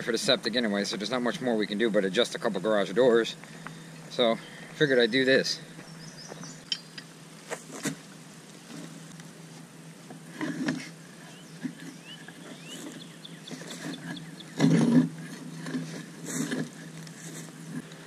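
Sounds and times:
thumps and scuffs on ground: 7.5 - 8.1.

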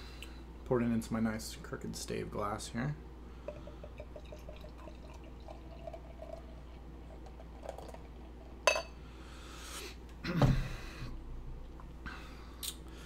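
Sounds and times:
beer pouring into a glass: 3.5 - 8.8
glass clinking: 8.6 - 9.0.

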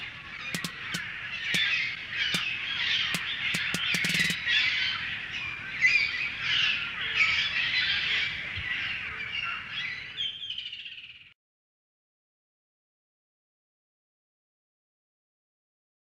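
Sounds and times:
sharp clicks: 0.0 - 1.7, 3.2 - 4.4
birds chirping: 0.0 - 11.3.

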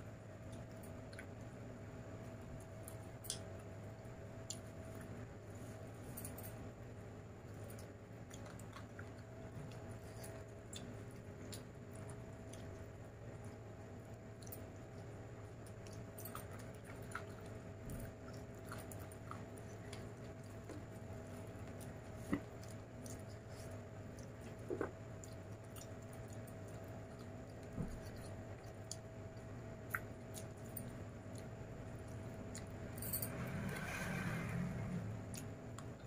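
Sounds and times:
person chewing: 15.7 - 32.7.

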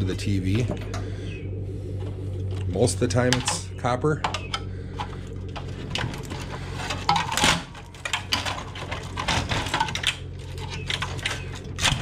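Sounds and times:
plastic and wire clicks and rattles: 4.2 - 12.0
rattling scrape: 4.4 - 12.0.

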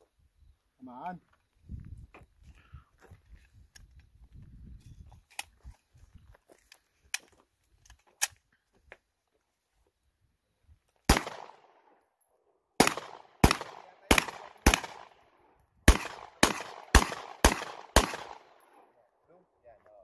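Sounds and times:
gunshots with echo: 11.1 - 11.7, 12.8 - 15.3, 15.9 - 18.7.

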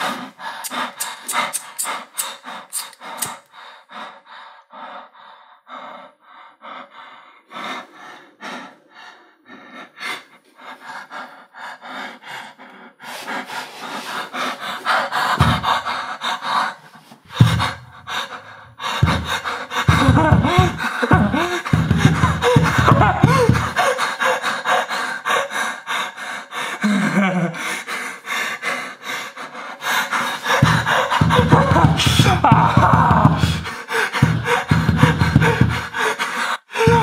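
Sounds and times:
breathy gasps and pants: 0.0 - 37.0
fast clicking pulse: 0.6 - 3.5
deep bass thumps: 19.0 - 23.7, 30.6 - 35.9.

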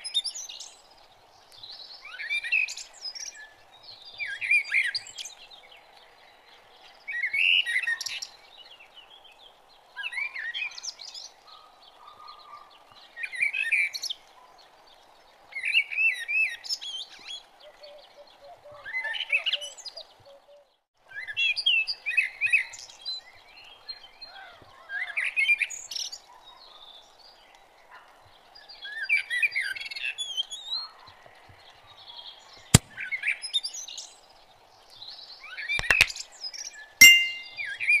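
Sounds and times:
sharp clicks: 35.8 - 36.1.

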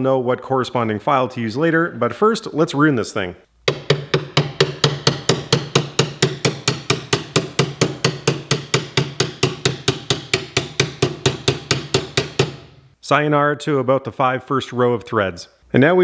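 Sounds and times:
hammer striking metal bolt: 3.7 - 12.9.

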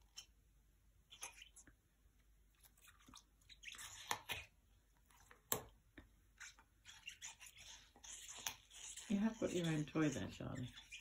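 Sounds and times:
dog chewing on a toy: 6.4 - 11.0.

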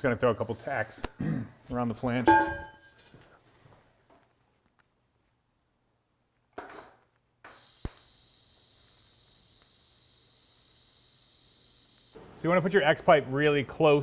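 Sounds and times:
welding arc hissing: 7.4 - 12.2
welding arc striking click: 7.4 - 12.2.

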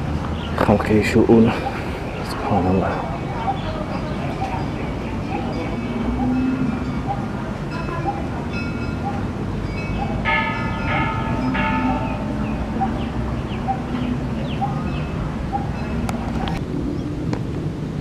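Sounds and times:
bell-like chimes: 3.9 - 16.1.

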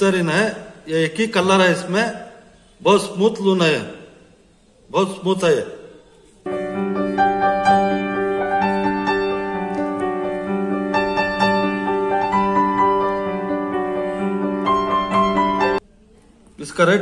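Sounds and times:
piano keyboard music: 6.4 - 15.8.

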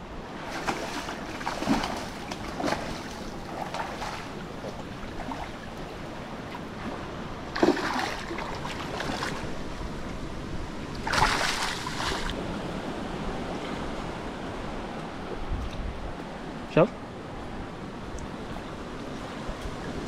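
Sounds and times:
fish splashing at water surface: 0.5 - 4.3, 7.6 - 9.4, 11.0 - 12.4.

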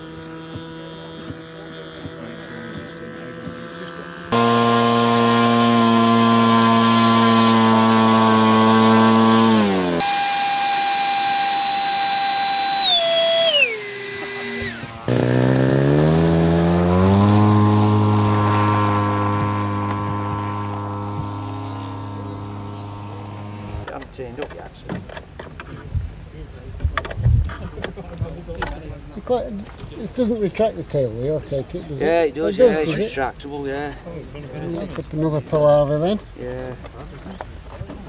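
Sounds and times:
model jet whine: 0.0 - 23.9
model aero engine running: 0.0 - 24.0
model plane engine revving: 0.0 - 24.0.

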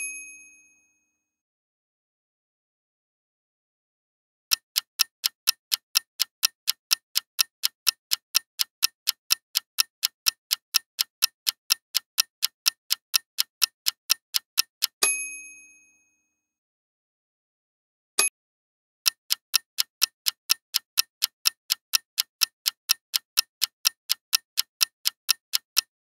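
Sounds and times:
bell ding: 0.0 - 1.1, 15.0 - 16.2
clock ticking: 4.5 - 15.0, 19.0 - 26.0.

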